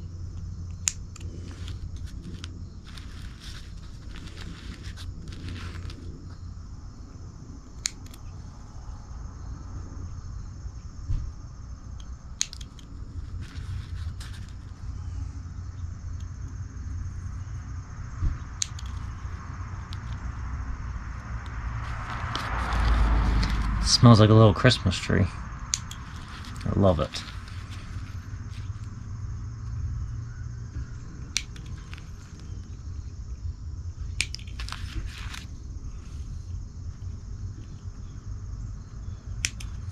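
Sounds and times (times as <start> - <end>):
low steady rumble: 0.0 - 39.9
snips cutting pine needles: 7.8 - 8.2, 25.7 - 27.6.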